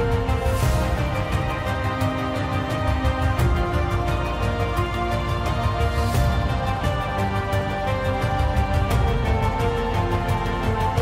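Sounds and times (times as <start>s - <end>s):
documentary background music: 0.0s - 11.0s.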